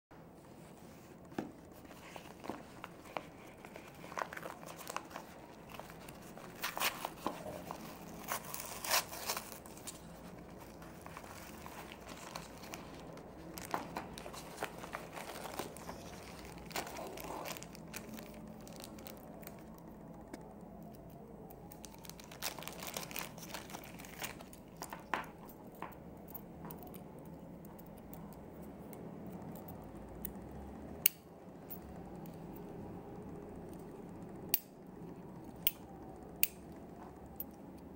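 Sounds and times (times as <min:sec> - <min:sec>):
plastic bags rustling: 0:00.4 - 0:19.8, 0:21.6 - 0:25.9
paper envelope tearing and crinkling: 0:03.6 - 0:19.7, 0:21.8 - 0:24.8.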